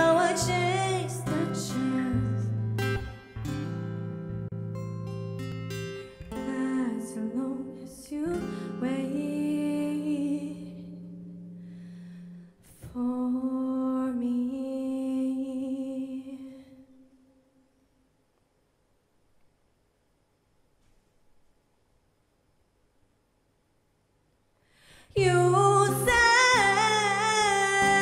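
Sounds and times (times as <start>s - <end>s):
woman singing: 0.0s - 2.8s, 6.3s - 11.1s, 12.7s - 17.2s, 25.0s - 28.0s
acoustic guitar strumming: 0.0s - 7.7s, 25.2s - 28.0s.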